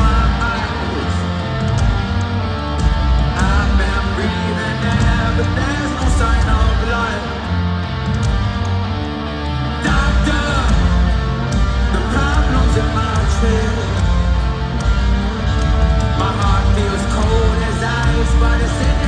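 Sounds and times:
lead singer singing: 0:00.0 - 0:01.8, 0:03.2 - 0:07.5, 0:09.7 - 0:14.7, 0:16.0 - 0:19.0
rock band playing live: 0:00.0 - 0:19.0.

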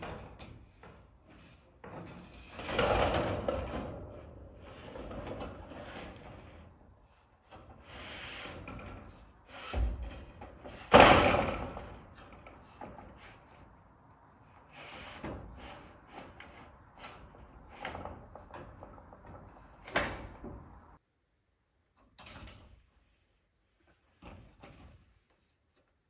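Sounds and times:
metal roofing panels banging: 0:00.0 - 0:06.8, 0:07.4 - 0:13.8.

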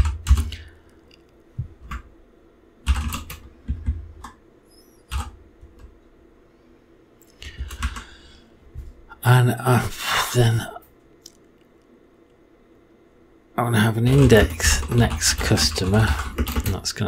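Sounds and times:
computer keyboard typing: 0:00.0 - 0:00.6, 0:02.8 - 0:04.4, 0:05.1 - 0:05.9, 0:07.6 - 0:08.1, 0:14.1 - 0:16.8.

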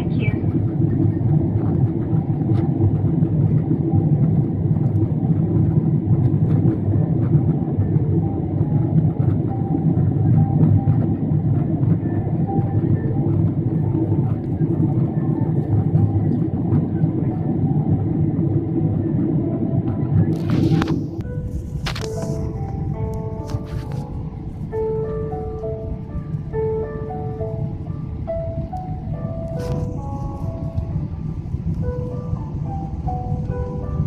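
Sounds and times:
airliner cabin rumble: 0:00.0 - 0:34.0.

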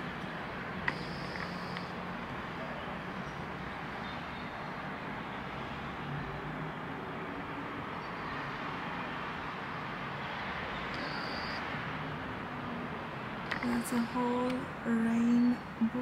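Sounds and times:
distant city traffic hum: 0:00.0 - 0:16.0
faint high whistle: 0:11.0 - 0:11.7.

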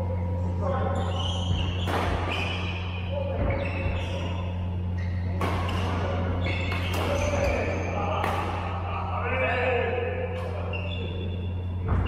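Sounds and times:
steady low hum: 0:00.0 - 0:12.0
rackets hitting shuttlecock: 0:01.2 - 0:04.6, 0:05.2 - 0:08.9.

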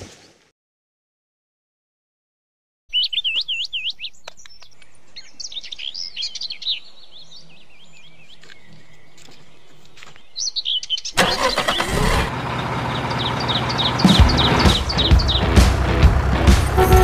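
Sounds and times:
birds singing: 0:02.9 - 0:16.0.

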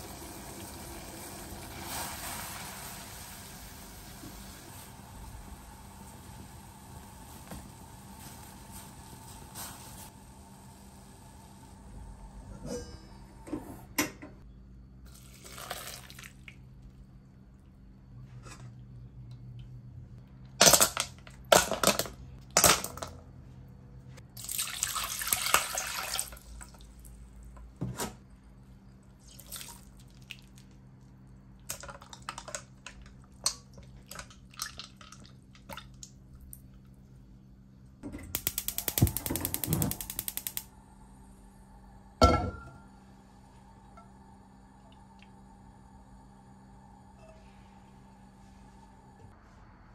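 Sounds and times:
steady low hum: 0:35.5 - 0:49.9
gas igniter clicking rapidly: 0:38.3 - 0:40.7.

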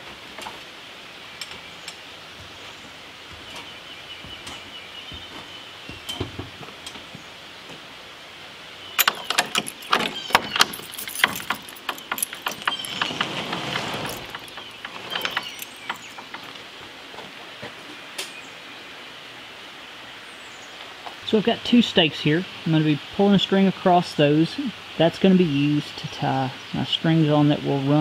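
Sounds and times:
padlock and keys rattling: 0:09.0 - 0:16.6
wooden barn door scraping open: 0:09.0 - 0:16.6.

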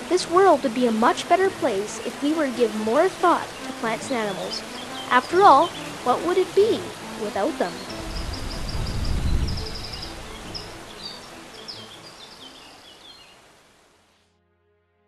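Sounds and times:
river rushing: 0:00.0 - 0:14.1
small bird chirping: 0:03.4 - 0:13.4.

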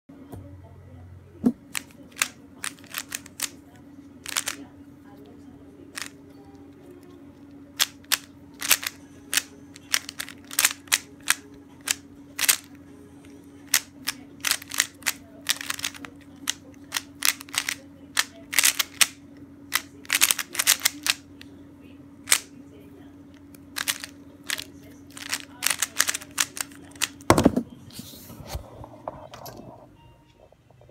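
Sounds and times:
steady low hum: 0:00.1 - 0:30.9
plastic puzzle cube clicking: 0:01.7 - 0:03.6, 0:04.2 - 0:04.6, 0:06.0 - 0:06.2, 0:07.8 - 0:12.7, 0:13.7 - 0:21.2, 0:22.3 - 0:22.5, 0:23.8 - 0:27.3.

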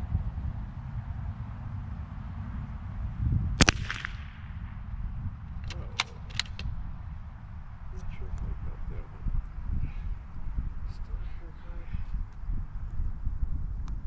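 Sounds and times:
rifle shot: 0:03.6 - 0:04.9, 0:05.6 - 0:06.8
rifle bolt clicks: 0:05.6 - 0:06.7.

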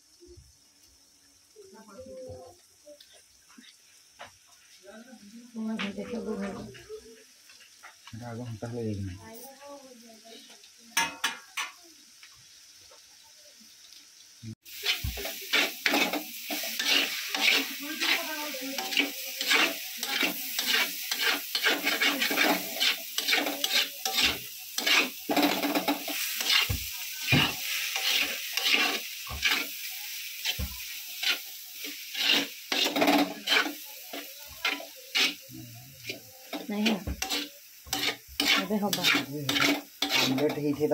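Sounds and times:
hot oil sizzling: 0:00.0 - 0:40.9
metal spatula scraping a wok: 0:14.7 - 0:40.9.

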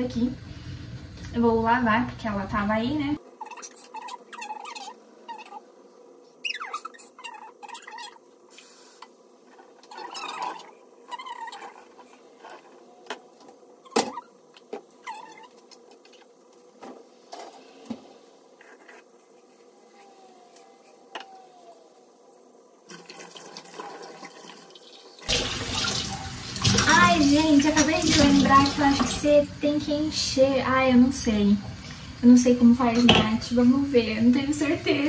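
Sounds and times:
tap water running into sink: 0:22.9 - 0:29.3.

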